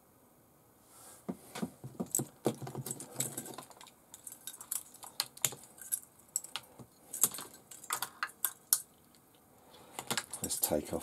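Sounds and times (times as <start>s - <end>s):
plastic connectors clicking: 10.0s - 10.5s.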